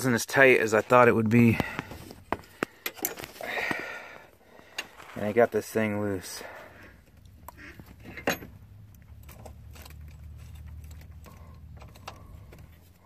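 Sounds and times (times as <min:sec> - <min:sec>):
low steady hum: 0:00.8 - 0:13.0
metal socket tools clinking: 0:08.1 - 0:08.6.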